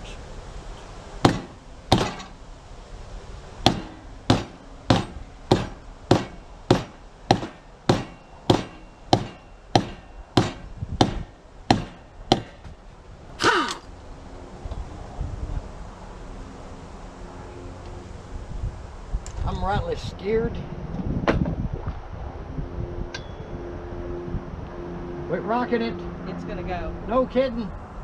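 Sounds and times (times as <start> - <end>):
hammer striking metal wheel: 1.2 - 2.4, 3.7 - 12.7
short falling screech: 13.4 - 13.9.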